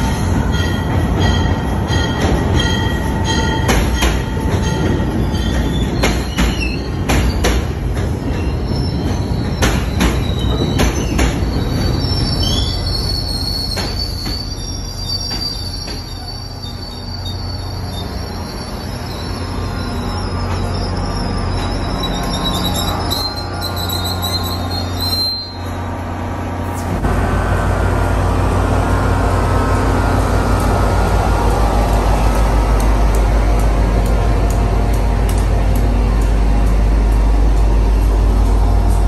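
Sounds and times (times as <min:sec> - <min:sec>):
train rumble: 0:00.0 - 0:39.0
train wheels clicking over rail joints: 0:00.4 - 0:17.2
high wheel squeal: 0:08.2 - 0:26.0.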